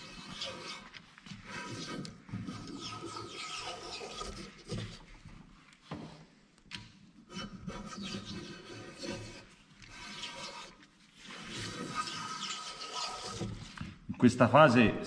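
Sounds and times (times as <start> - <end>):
hand plane rasping on bamboo: 0.0 - 5.0, 7.3 - 13.7.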